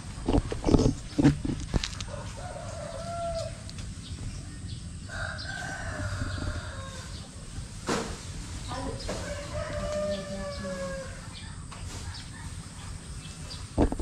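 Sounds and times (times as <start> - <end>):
rooster crowing: 2.0 - 3.7, 5.0 - 7.4, 9.1 - 11.4
loud thumps: 13.8 - 14.0.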